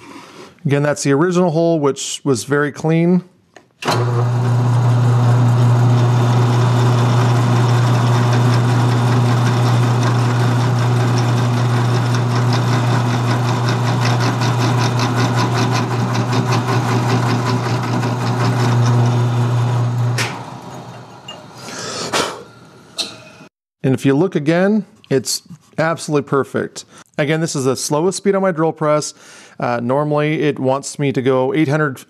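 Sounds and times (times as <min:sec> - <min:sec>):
drill bit boring into wood: 0:03.8 - 0:20.2
drill press motor humming: 0:03.8 - 0:21.6.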